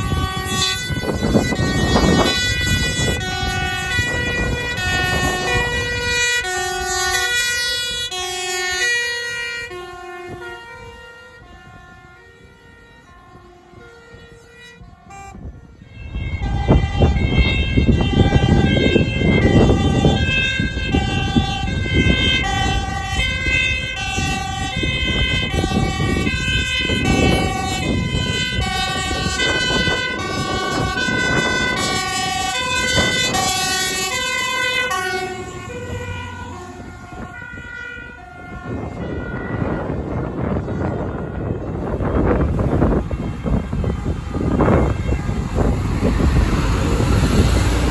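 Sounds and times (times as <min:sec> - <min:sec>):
two-tone fire engine sirens: 0:00.0 - 0:47.9
heavy low engine rumble: 0:23.9 - 0:47.9.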